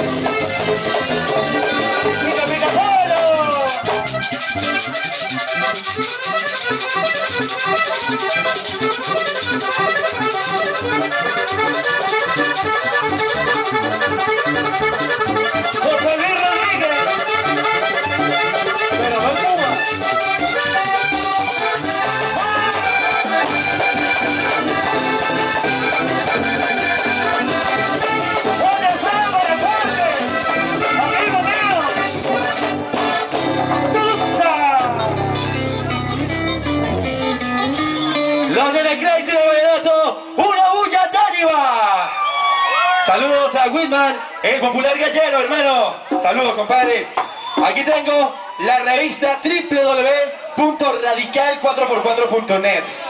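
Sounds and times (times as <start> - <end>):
hand percussion: 0.0 - 38.6
bass guitar: 0.0 - 39.5
button accordion playing quick runs: 0.0 - 39.6.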